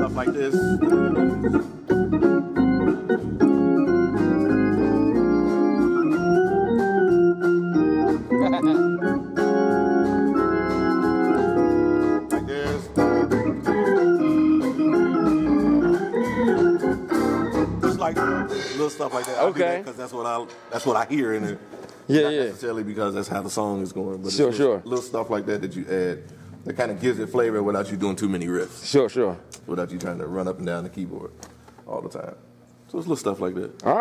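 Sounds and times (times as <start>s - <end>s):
hammond organ gospel chords: 0.0s - 19.3s.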